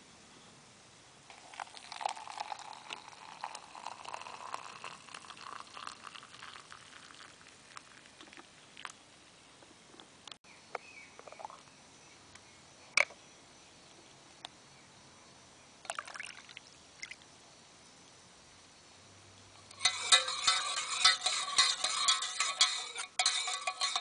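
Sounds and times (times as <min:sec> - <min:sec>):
hot water pouring into mug: 0:01.3 - 0:08.5, 0:15.9 - 0:16.6, 0:19.7 - 0:24.0.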